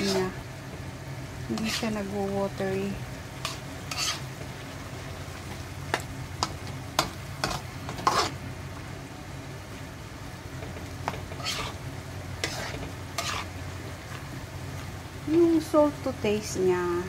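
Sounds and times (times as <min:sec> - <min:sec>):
spatula scraping and tapping a wok: 0:00.0 - 0:00.4, 0:01.5 - 0:02.1, 0:03.4 - 0:04.5, 0:05.5 - 0:08.4, 0:10.6 - 0:11.8, 0:12.4 - 0:14.2
frying sizzle: 0:00.0 - 0:17.0.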